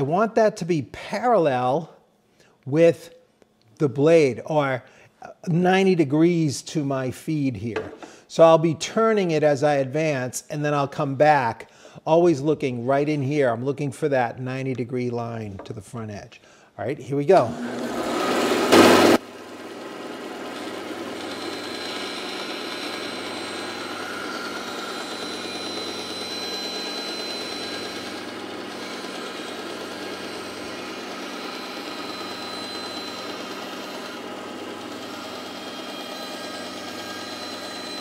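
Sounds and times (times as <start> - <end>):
bandsaw cutting wood: 17.5 - 38.0.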